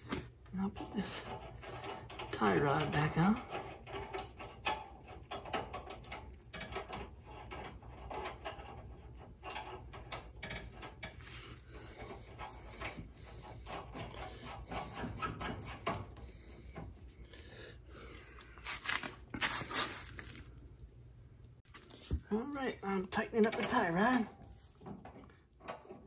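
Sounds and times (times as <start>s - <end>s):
metal clatter: 0.7s - 16.2s
small metal clicks and knocks: 1.2s - 13.0s, 22.7s - 26.0s.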